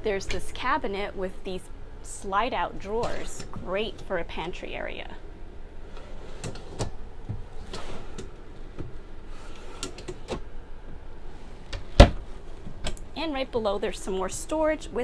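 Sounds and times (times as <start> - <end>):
wooden drawers sliding on metal slides: 7.6 - 8.3
cabinet shutting with sharp knock: 12.0 - 12.2.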